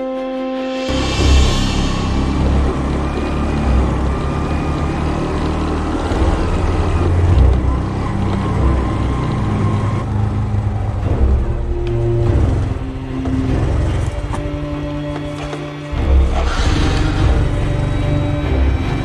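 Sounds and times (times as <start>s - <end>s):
motorbike engine running: 2.0s - 15.5s.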